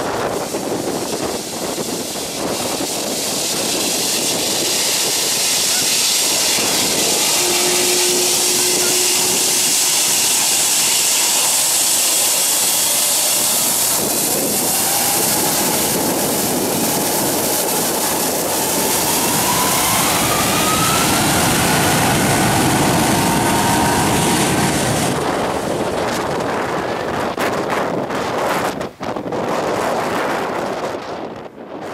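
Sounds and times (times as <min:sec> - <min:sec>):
jet engines roaring: 0:00.0 - 0:27.4
engine whine rising in pitch: 0:05.8 - 0:25.7.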